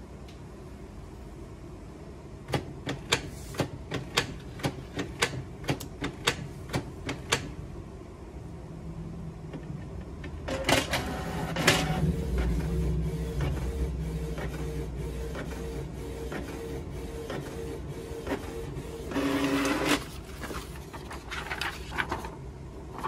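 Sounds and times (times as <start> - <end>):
printer motors whirring: 10.4 - 21.7
printer clattering: 10.4 - 22.3.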